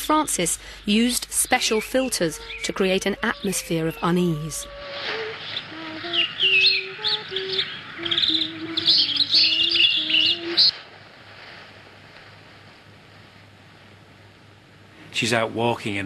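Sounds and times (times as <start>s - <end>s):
low whistled notes: 0.1s - 10.8s
high bird chirps and trills: 0.9s - 10.8s.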